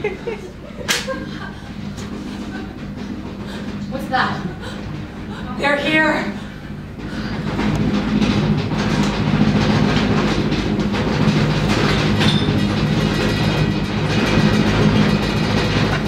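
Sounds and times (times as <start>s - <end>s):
aircraft engines droning: 0.0s - 10.4s.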